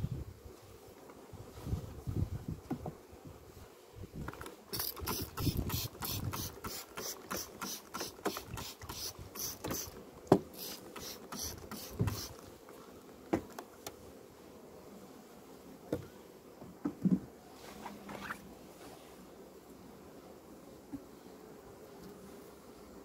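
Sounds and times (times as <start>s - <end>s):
trigger sprayer hissing squirts: 4.7s - 10.0s, 10.6s - 12.4s.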